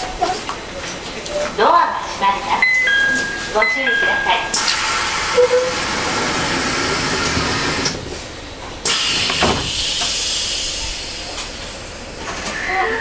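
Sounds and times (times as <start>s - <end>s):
train doors compressed air hissing: 4.6s - 12.5s.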